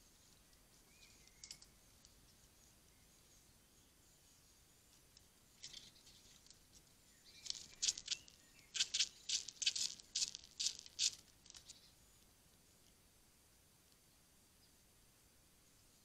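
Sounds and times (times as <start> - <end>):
squirrel scratching on wood: 7.4 - 11.8.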